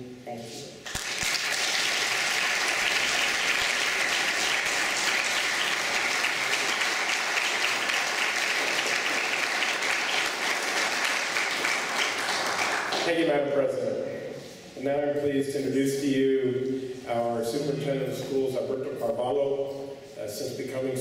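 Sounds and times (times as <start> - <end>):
audience clapping: 0.8 - 13.3.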